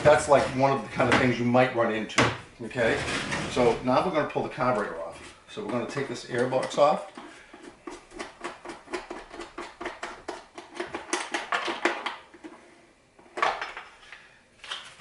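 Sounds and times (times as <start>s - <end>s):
plastic cover clicking and rattling: 8.2s - 12.5s.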